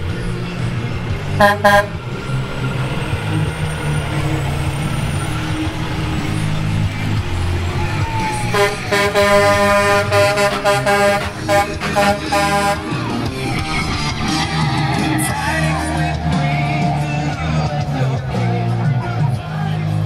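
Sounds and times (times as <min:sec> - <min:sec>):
truck engine rumbling: 0:00.0 - 0:20.0
truck horn blasts: 0:01.4 - 0:02.0, 0:08.5 - 0:13.2.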